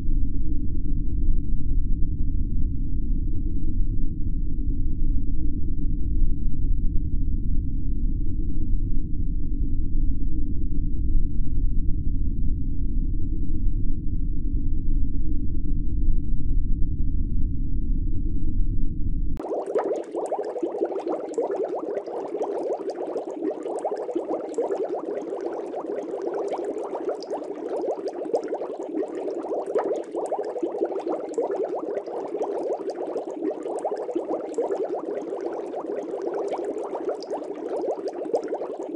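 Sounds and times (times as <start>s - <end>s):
water bubbling: 19.4s - 38.9s.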